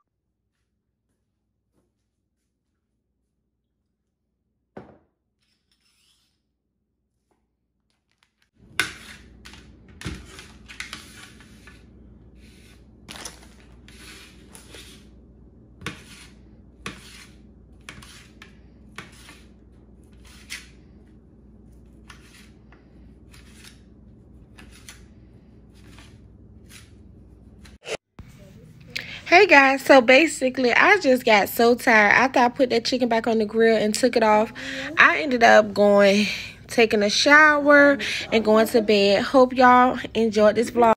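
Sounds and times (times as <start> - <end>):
steady low hum: 13.8 - 40.9.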